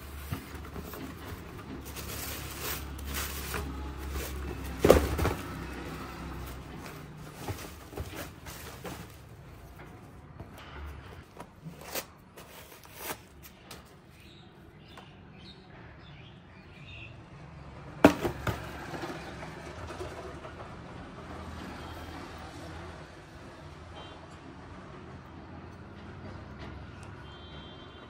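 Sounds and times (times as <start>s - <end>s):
packaging rustling and tapping: 0.0s - 9.4s
sneaker knocking in box: 18.0s - 18.7s.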